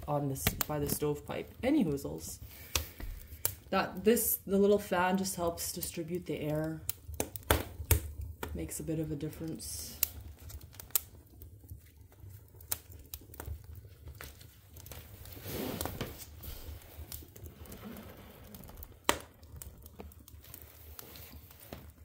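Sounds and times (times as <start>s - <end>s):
wood fire crackling: 0.0s - 22.0s
sharp pops of burning logs: 0.4s - 1.0s, 2.5s - 3.7s, 6.8s - 8.7s, 9.5s - 22.0s.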